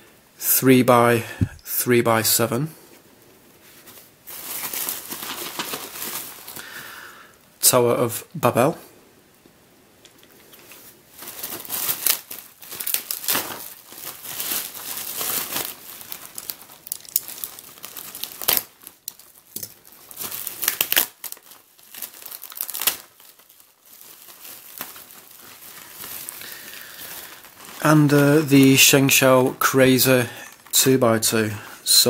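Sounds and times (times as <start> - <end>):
bubble wrap crinkling: 3.5 - 6.8, 10.3 - 32.0.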